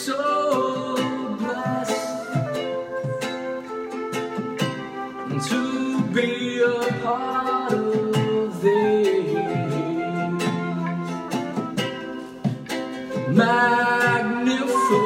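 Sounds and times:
man singing slow song: 0.0s - 2.6s, 5.3s - 11.8s, 13.2s - 15.0s
ukulele strumming: 0.0s - 15.0s.

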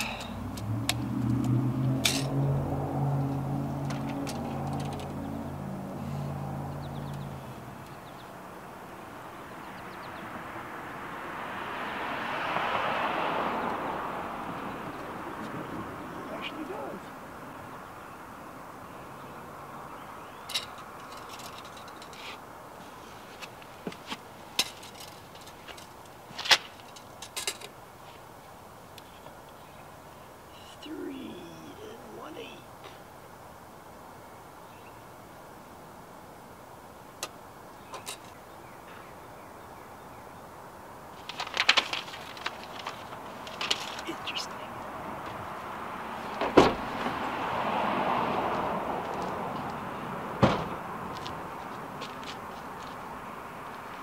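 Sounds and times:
vehicle passing: 0.0s - 23.2s, 30.5s - 34.2s, 40.6s - 54.0s.

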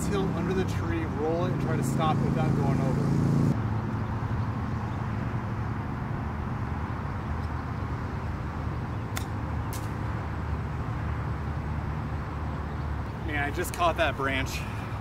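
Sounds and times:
sharp click: 9.1s - 10.0s.

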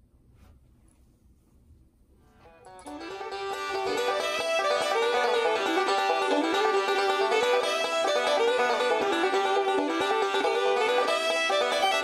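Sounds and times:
bluegrass tune with banjo: 2.7s - 12.0s.

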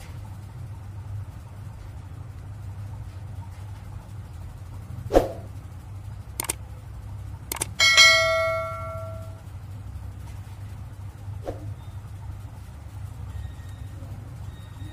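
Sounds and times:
steady low hum: 0.0s - 14.9s
mouse clicks: 6.4s - 6.6s, 7.5s - 7.7s
bright bell ding: 7.8s - 9.4s.

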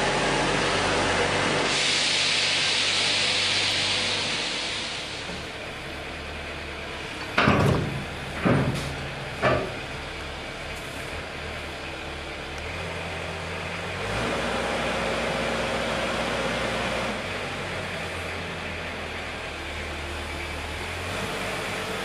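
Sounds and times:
forklift engine running: 0.0s - 22.0s
metal clanks: 7.2s - 9.9s.

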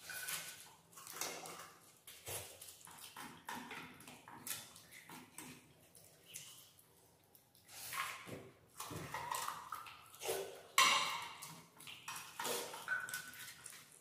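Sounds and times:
hands working food on steel plates: 10.6s - 13.9s.

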